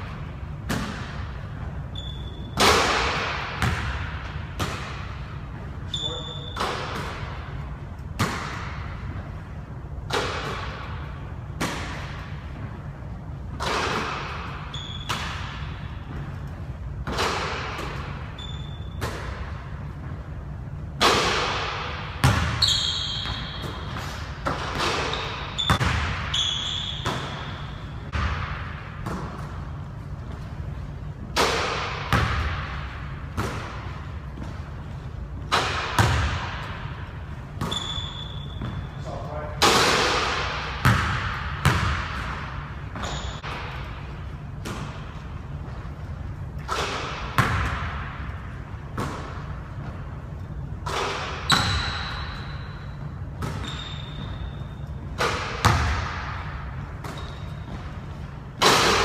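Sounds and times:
sneakers squeaking on floor: 0:00.0 - 0:09.5, 0:13.5 - 0:20.4, 0:22.2 - 0:28.3, 0:37.1 - 0:39.6, 0:40.8 - 0:47.8, 0:49.0 - 0:56.1, 0:56.8 - 0:58.6
basketball bouncing on wooden floor: 0:02.0 - 0:05.0, 0:22.2 - 0:29.6, 0:31.6 - 0:32.8, 0:35.4 - 0:36.8, 0:40.8 - 0:43.9, 0:47.1 - 0:48.1, 0:50.9 - 0:54.5, 0:55.2 - 0:57.9
basketball striking hoop: 0:02.2 - 0:05.2, 0:08.2 - 0:08.9, 0:21.0 - 0:29.6, 0:31.3 - 0:34.6, 0:35.5 - 0:36.9, 0:39.6 - 0:44.0, 0:46.6 - 0:48.2, 0:50.9 - 0:54.6, 0:55.2 - 0:57.9.

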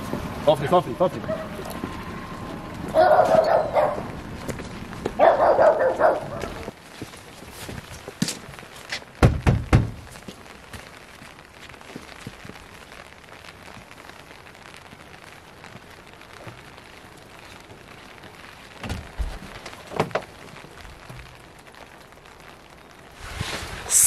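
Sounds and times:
light rain hissing: 0:00.0 - 0:24.0
knocking on wooden door: 0:09.2 - 0:10.0.

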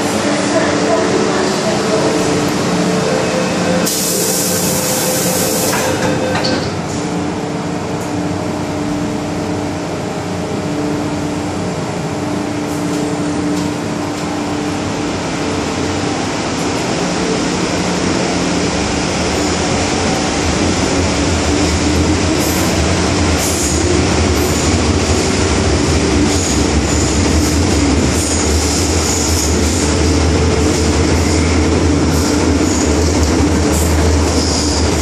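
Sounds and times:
train car hum: 0:00.0 - 0:35.0
train door hiss: 0:03.8 - 0:06.1.

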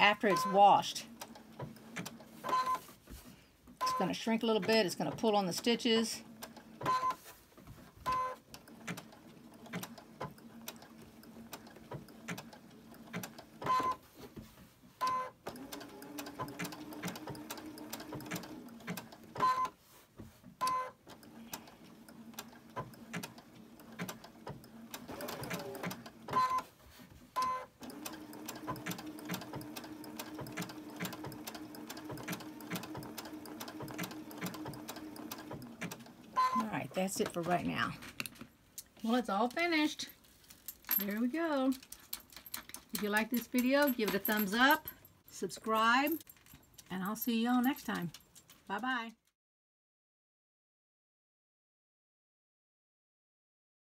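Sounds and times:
sewing machine stitching: 0:00.0 - 0:02.8, 0:03.8 - 0:07.2, 0:08.0 - 0:14.0, 0:15.1 - 0:19.8, 0:20.6 - 0:26.7, 0:27.4 - 0:37.6.

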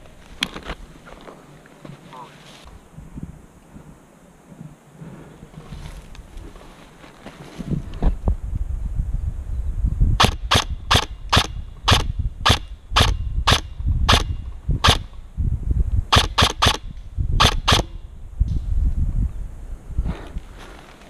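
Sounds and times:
wind noise: 0:00.0 - 0:21.0
airsoft rifle shots: 0:10.2 - 0:15.2, 0:16.1 - 0:18.0.

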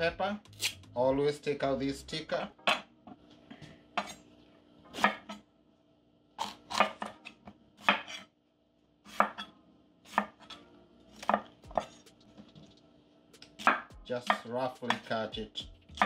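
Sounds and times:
knife slicing pepper on wooden board: 0:06.4 - 0:08.3, 0:09.1 - 0:09.5, 0:10.1 - 0:10.5, 0:11.2 - 0:12.1.

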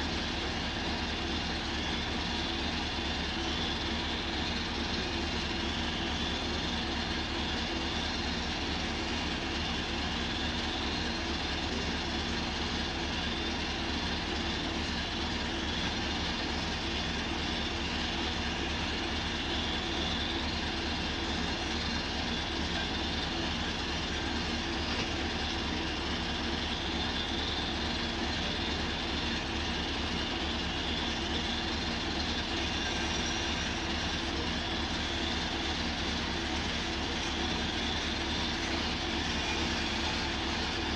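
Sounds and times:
drilling rig engine throbbing: 0:00.0 - 0:40.9.

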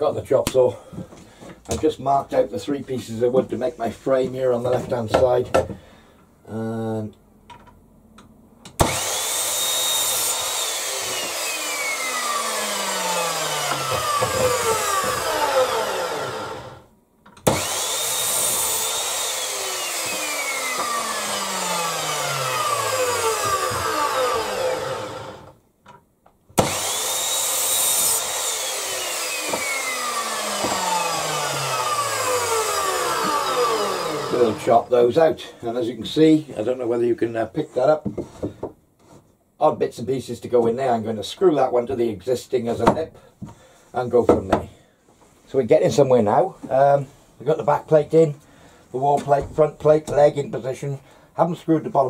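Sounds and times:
mitre saw cutting timber: 0:08.8 - 0:25.6, 0:26.6 - 0:34.9.

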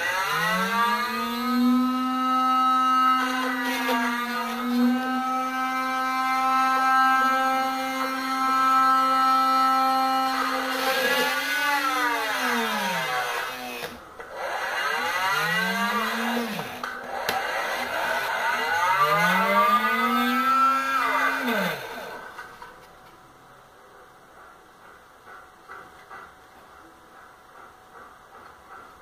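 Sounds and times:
small electric motor whining: 0:00.0 - 0:22.7.

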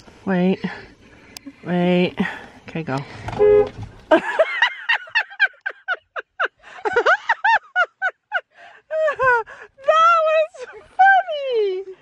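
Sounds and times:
car horn honk: 0:03.3 - 0:03.8.

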